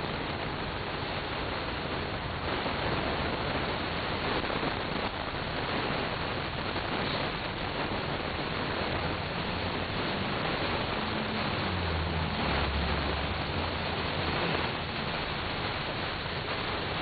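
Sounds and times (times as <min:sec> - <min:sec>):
moving tram rumble and hiss: 0:00.0 - 0:17.0.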